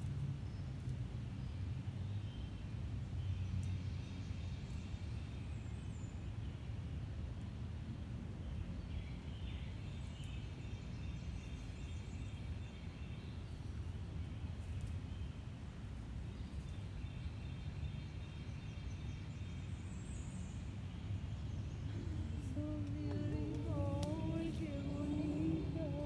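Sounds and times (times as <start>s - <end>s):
birds chirping: 8.4s - 26.0s
low rumble: 20.4s - 26.0s.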